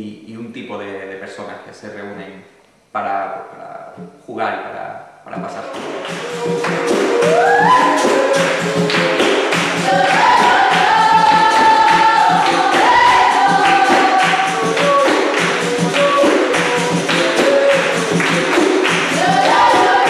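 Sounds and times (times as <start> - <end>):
berimbaus and drums playing rhythm: 5.3 - 20.0
hand clapping: 5.6 - 20.0
group singing in chorus: 5.8 - 20.0.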